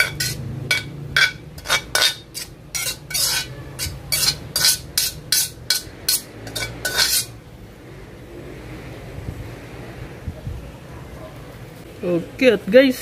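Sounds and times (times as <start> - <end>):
utensil scraping a pan: 0.0 - 7.4.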